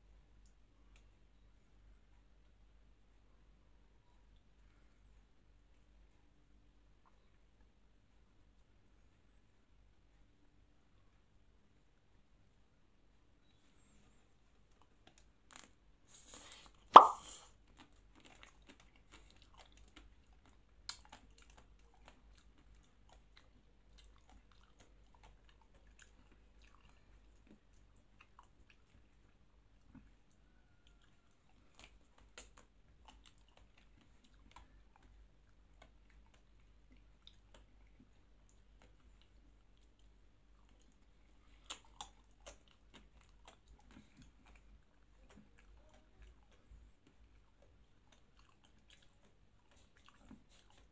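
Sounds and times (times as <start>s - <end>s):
chewing and mouth sounds: 13.4s - 50.9s.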